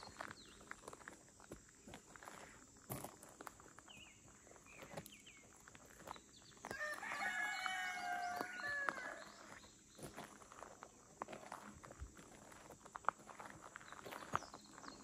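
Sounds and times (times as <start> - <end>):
rooster crowing: 6.7 - 9.5.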